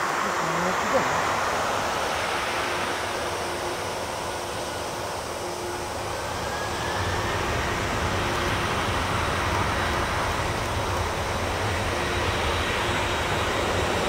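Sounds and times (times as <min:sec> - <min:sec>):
jet engines roaring at takeoff: 0:00.0 - 0:14.0.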